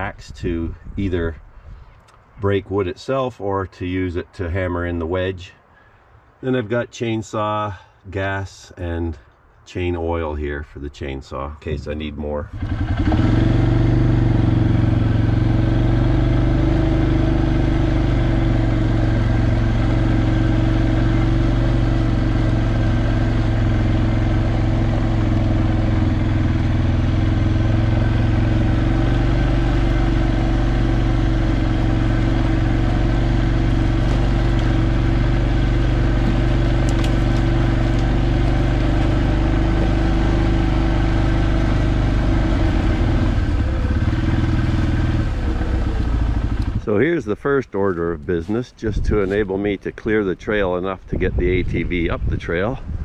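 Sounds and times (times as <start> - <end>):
atv engine droning steadily: 10.6 - 53.0.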